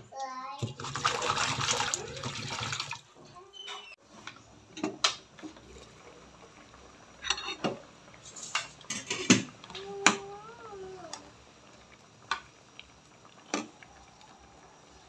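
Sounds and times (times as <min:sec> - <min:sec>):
metal kitchenware clattering: 0:07.2 - 0:07.8, 0:08.4 - 0:09.5.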